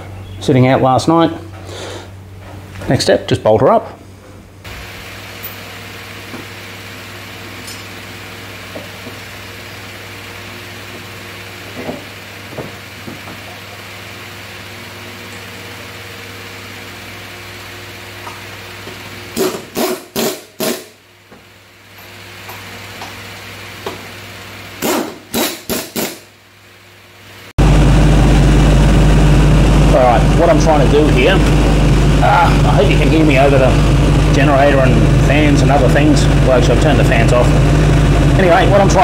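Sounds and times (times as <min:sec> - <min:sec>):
generator and fans humming: 0:00.0 - 0:39.0
air impact wrench bursts: 0:19.3 - 0:21.0, 0:24.8 - 0:26.3.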